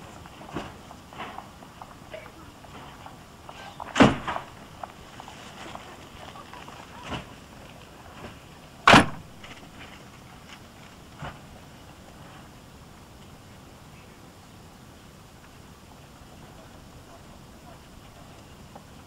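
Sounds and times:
train doors slamming shut: 3.6 - 4.6, 8.8 - 9.5.

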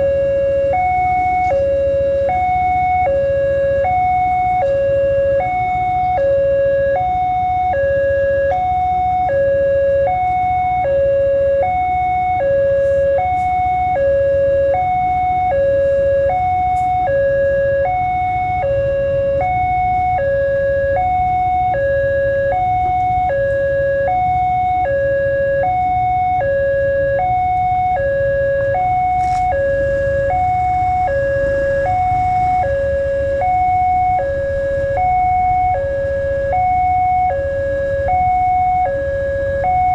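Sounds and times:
two-tone electronic warning chime: 0.0 - 39.9.

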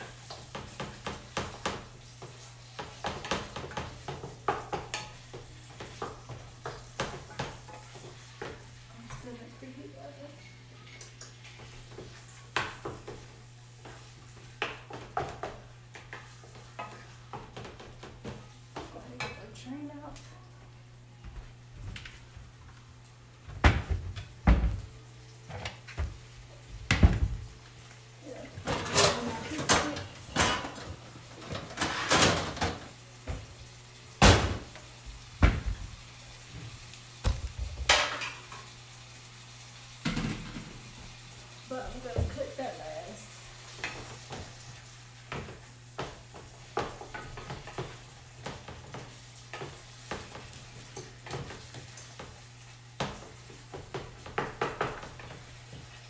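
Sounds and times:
cookware and cupboards banging: 23.5 - 24.9, 28.6 - 33.4, 34.2 - 34.8, 37.2 - 38.7, 53.0 - 55.4.

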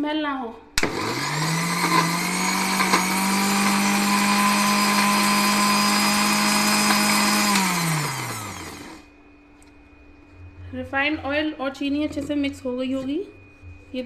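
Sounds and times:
motor winding down: 0.8 - 9.0
mixer grinder motor running: 0.8 - 9.1.

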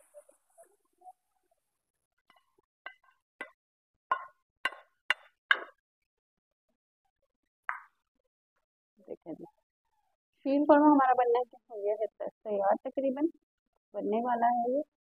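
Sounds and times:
utensil knocking on frying pan: 2.9 - 5.8.

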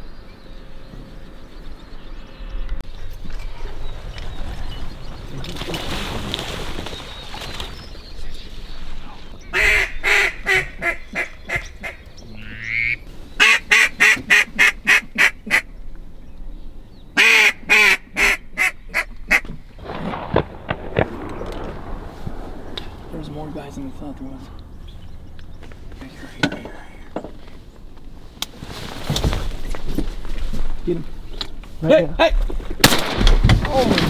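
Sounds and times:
duck quacking: 9.5 - 15.7.

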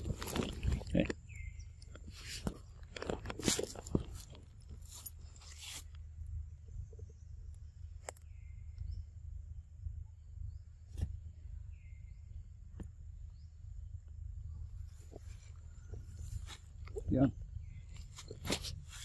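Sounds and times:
monkey chewing crunchy food: 0.0 - 1.4.

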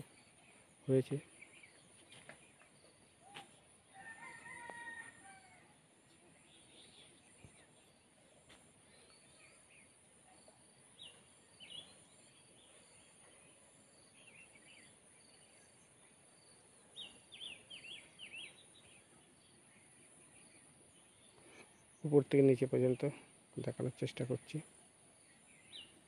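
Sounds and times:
bird chirps: 6.1 - 24.6, 25.2 - 26.0.

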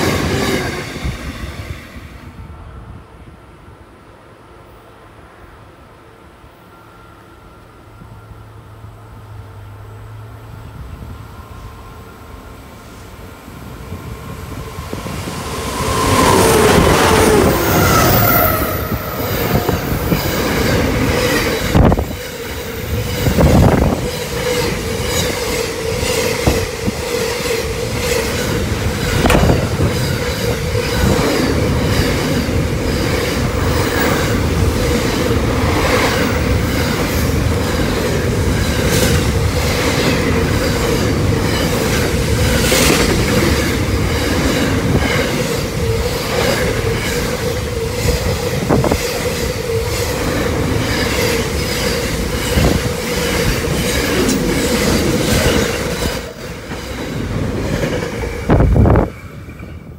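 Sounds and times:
diesel locomotive engines: 0.0 - 59.9
train wheel squeal: 6.6 - 8.8, 14.3 - 59.9.

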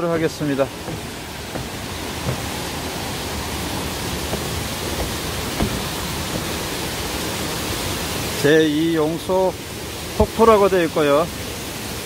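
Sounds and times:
footsteps on wooden stairs: 0.0 - 7.8
waterfall rushing: 0.0 - 12.0.

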